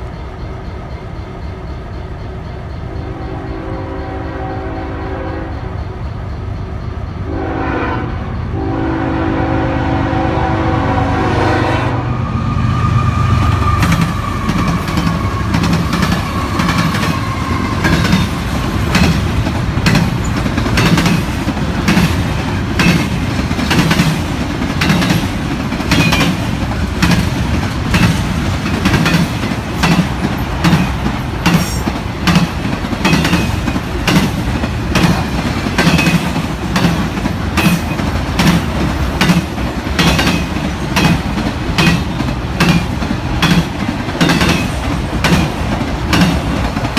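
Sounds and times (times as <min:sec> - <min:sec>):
diesel locomotive rumble: 0:00.0 - 0:46.9
train wheels clacking over rail joints: 0:13.5 - 0:46.9.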